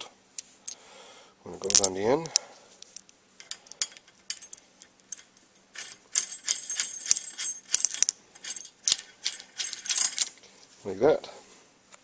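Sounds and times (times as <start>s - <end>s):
bolt and washer clinking on metal: 1.6s - 2.0s, 3.4s - 10.3s.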